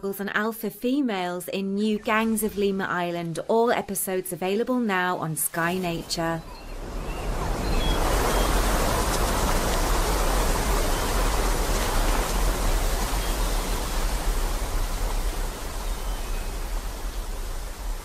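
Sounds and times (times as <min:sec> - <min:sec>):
waterfall rushing: 0:05.8 - 0:18.0.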